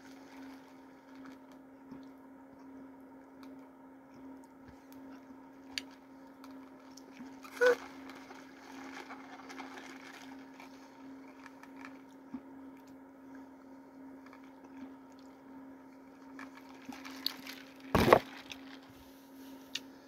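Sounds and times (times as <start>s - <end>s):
faint steady hum: 0.0s - 20.0s
sipping soda through a straw: 6.7s - 12.2s.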